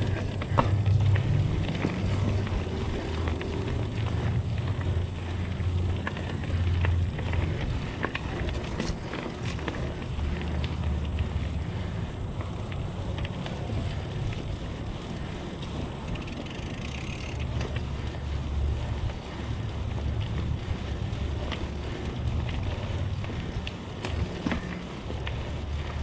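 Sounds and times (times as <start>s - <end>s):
bike clicks and rattles: 0.0s - 26.0s
bike tyres rumbling on dirt: 0.0s - 26.0s.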